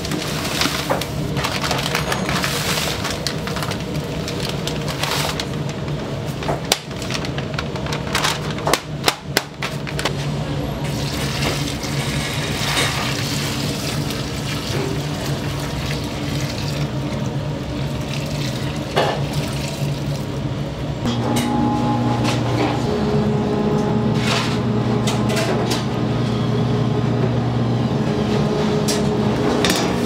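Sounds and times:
water running from tap: 13.0 - 17.2, 17.8 - 20.2.

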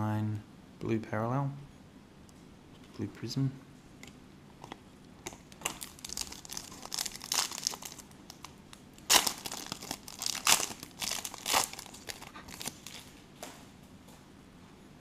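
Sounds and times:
foil wrapper crinkling and tearing: 5.5 - 13.2.

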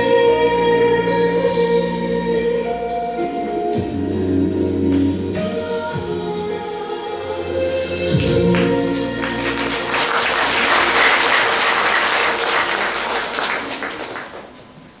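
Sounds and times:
audience applauding: 8.5 - 15.0.

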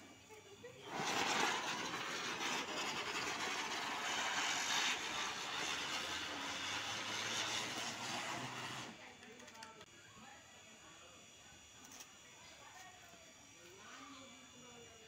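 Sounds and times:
spinner firework fizzing hiss: 0.0 - 9.6.

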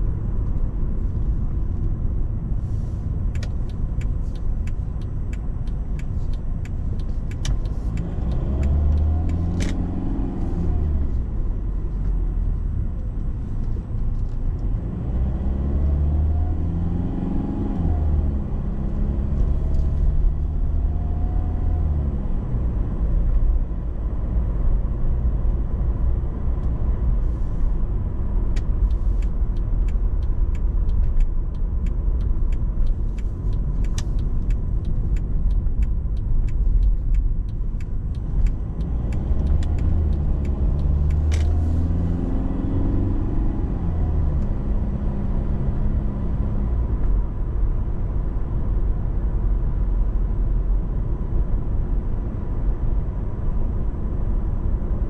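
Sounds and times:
car road rumble: 0.0 - 55.0
sharp irregular ticks: 28.6 - 42.1.

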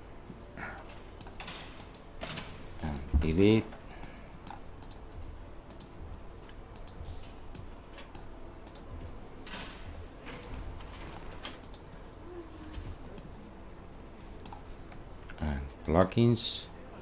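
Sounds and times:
faint low hum: 0.0 - 17.0
mouse and keyboard clicks: 4.0 - 5.0, 5.7 - 6.0, 6.7 - 11.8, 14.4 - 14.6.

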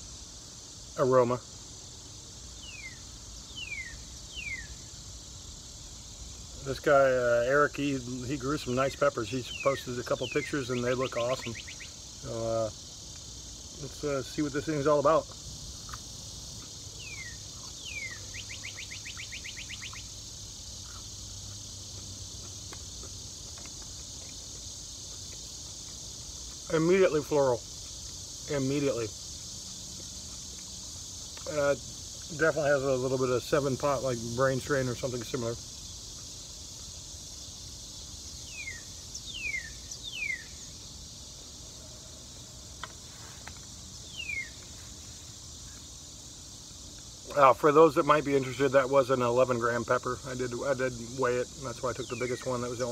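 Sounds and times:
insects chorus: 0.0 - 52.9
songbird whistles and trill: 2.6 - 4.8, 17.0 - 20.1, 38.5 - 40.6, 44.1 - 44.6.

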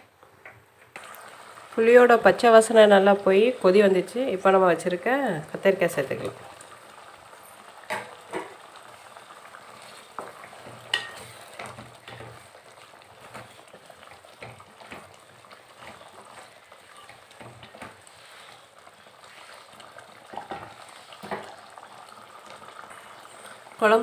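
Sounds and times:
curry bubbling in a pot: 0.9 - 24.0
spatula stirring: 9.6 - 21.5.

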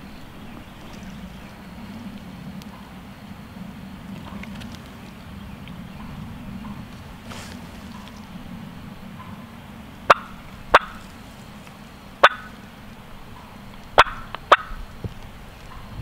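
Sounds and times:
turkey hen clucking: 5.9 - 15.0.

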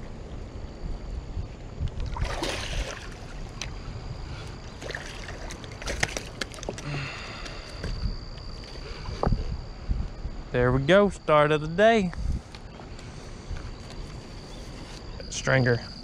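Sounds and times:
wind rumble on microphone: 0.0 - 16.0
fish splashing in water: 2.0 - 3.8, 4.7 - 6.8.

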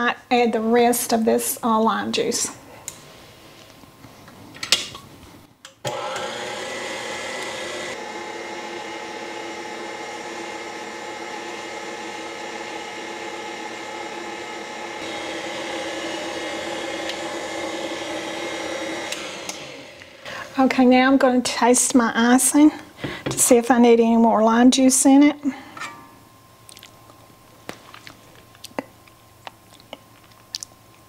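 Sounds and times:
stand mixer motor whine: 5.9 - 20.3.

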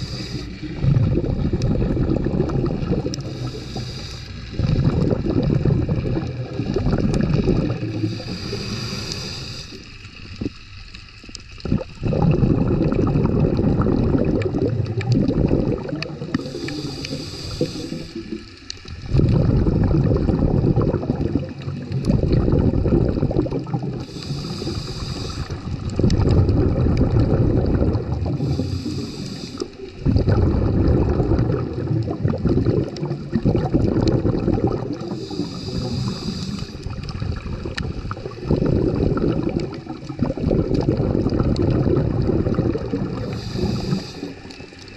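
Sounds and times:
diver breathing through regulator: 0.0 - 1.2, 3.0 - 5.7, 6.8 - 10.2, 12.0 - 21.0, 22.0 - 33.1, 34.1 - 39.6, 42.2 - 44.9.

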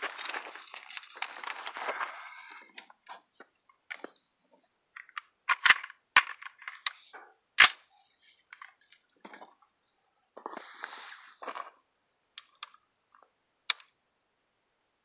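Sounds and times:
rifle metallic clicks and clacks: 7.6 - 7.8.

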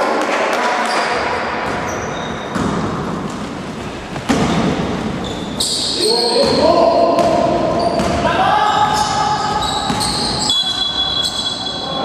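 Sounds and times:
basketball bouncing on wooden floor: 1.6 - 5.6, 7.2 - 8.3, 8.9 - 10.5
shoe squeaks: 1.8 - 2.6, 5.2 - 6.6, 7.8 - 12.0
players running: 2.6 - 5.9
loud thud: 4.2 - 5.0.

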